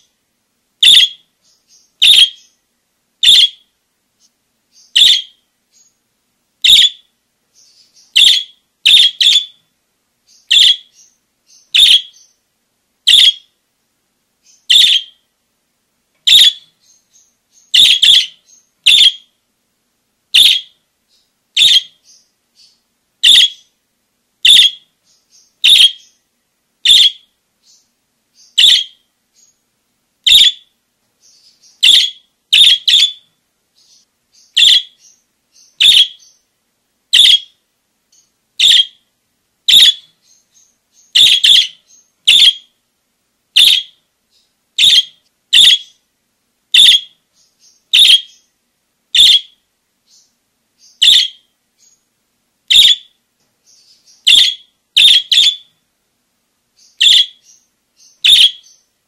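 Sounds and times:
budgerigar calling: 0.8s - 1.3s, 2.0s - 2.6s, 3.2s - 3.7s, 4.8s - 5.4s, 6.6s - 7.1s, 8.0s - 9.6s, 10.4s - 12.4s, 13.1s - 13.5s, 14.7s - 15.2s, 16.3s - 19.3s, 20.4s - 20.8s, 21.6s - 22.2s, 23.2s - 23.7s, 24.4s - 24.9s, 25.6s - 26.2s, 26.8s - 27.3s, 28.4s - 29.0s, 30.3s - 30.7s, 31.8s - 33.2s, 33.9s - 36.4s, 37.1s - 37.6s, 38.6s - 39.0s, 39.7s - 40.1s, 41.0s - 42.7s, 43.6s - 44.0s, 44.8s - 46.0s, 46.7s - 48.5s, 49.2s - 49.6s, 50.8s - 51.5s, 52.7s - 53.1s, 54.2s - 55.7s, 56.9s - 58.8s
soft bird chatter: 0.8s - 13.6s, 14.3s - 15.3s, 16.2s - 19.4s, 20.3s - 23.8s, 24.4s - 39.1s, 39.7s - 42.8s, 43.6s - 46.1s, 46.7s - 55.8s, 56.6s - 59.0s.

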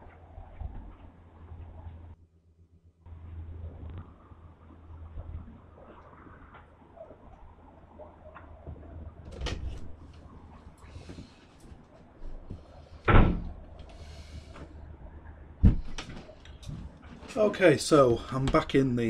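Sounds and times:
low steady hum: 0.0s - 19.0s
door opening and shutting: 9.2s - 10.0s, 13.0s - 14.0s.

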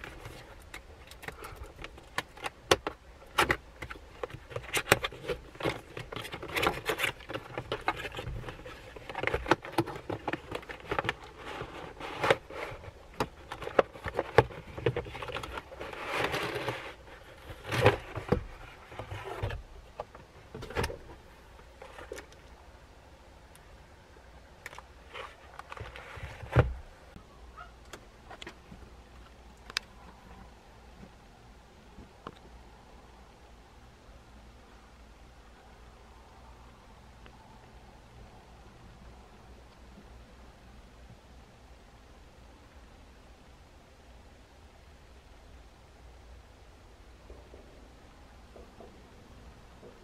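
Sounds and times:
cardboard box being unpacked: 3.4s - 19.6s.

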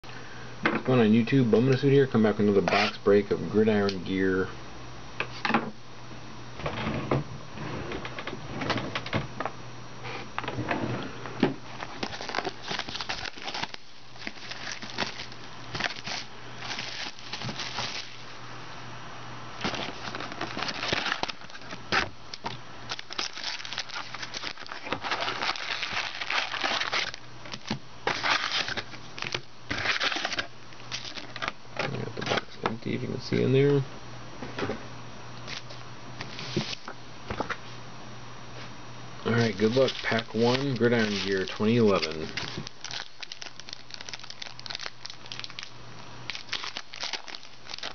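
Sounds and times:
cardboard and card packs rustling: 11.7s - 18.3s, 19.6s - 32.5s, 35.4s - 37.5s, 39.3s - 47.9s
plastic wrapping crinkling: 11.7s - 18.3s, 19.6s - 31.6s, 39.3s - 47.9s.

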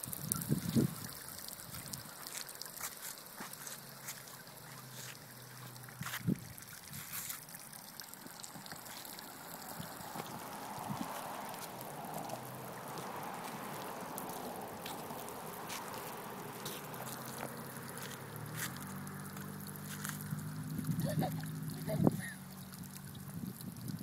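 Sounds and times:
water jets spattering on concrete: 0.0s - 24.0s.

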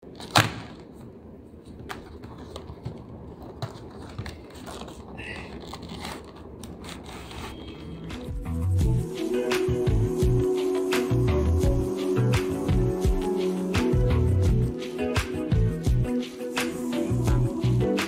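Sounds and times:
cardboard rubbing and scraping: 2.0s - 8.3s.

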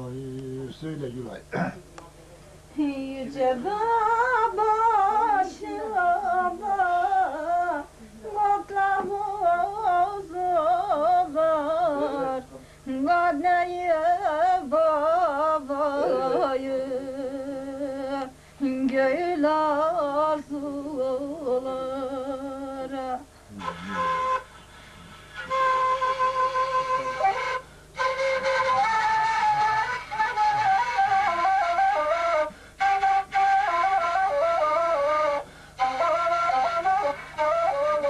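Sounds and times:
woman singing folk song: 2.8s - 23.3s.

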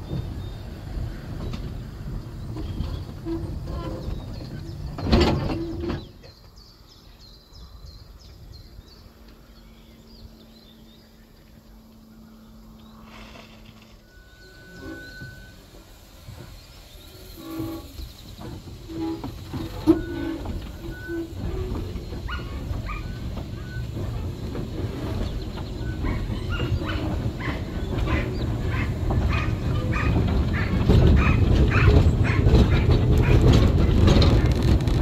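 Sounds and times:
wheels rumbling on track: 0.0s - 35.0s
steam locomotive exhaust chuffs: 11.6s - 35.0s.

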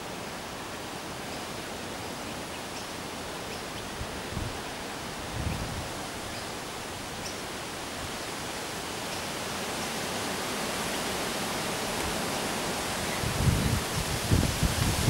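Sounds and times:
wind through bushes and trees: 0.0s - 15.0s
wind rumble on microphone: 3.9s - 6.3s, 13.0s - 15.0s.

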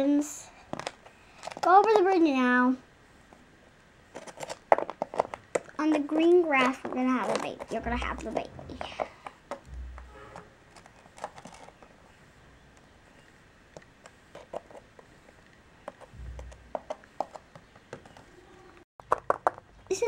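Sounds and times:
low thumps: 7.7s - 10.6s, 16.1s - 16.9s.

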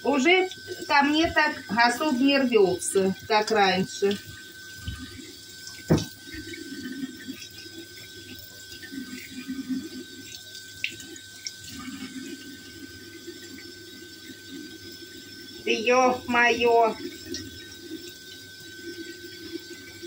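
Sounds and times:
fish being rinsed by hand: 0.0s - 20.0s
tap running into a sink: 3.4s - 6.6s.

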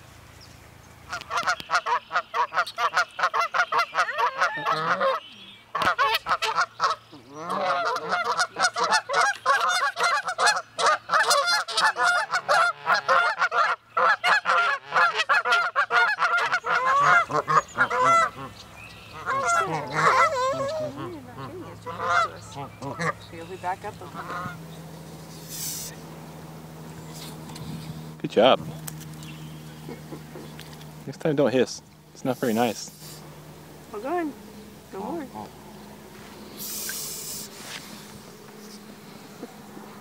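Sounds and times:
geese honking: 1.1s - 28.2s.

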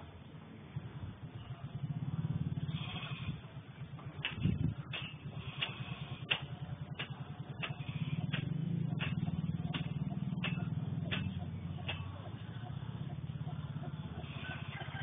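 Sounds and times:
low motor hum: 0.0s - 15.0s.

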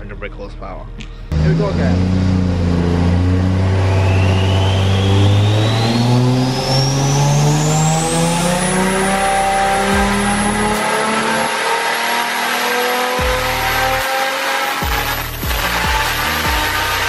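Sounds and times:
car engine revving: 1.3s - 17.0s
turbo whistle: 3.4s - 8.0s.

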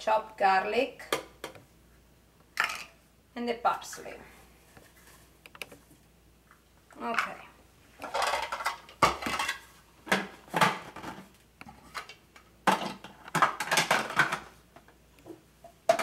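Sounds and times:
hard plastic clattering and knocking: 8.0s - 14.5s.

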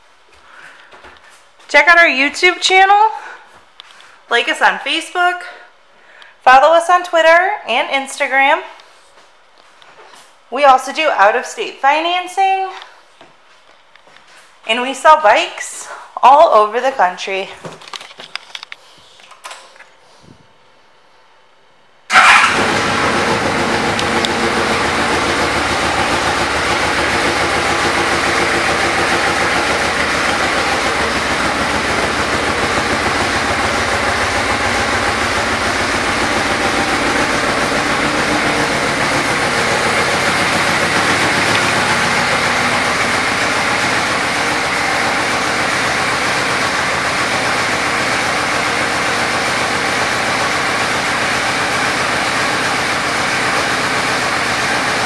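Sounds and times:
motorcycle engine starting and idling: 22.1s - 55.0s.

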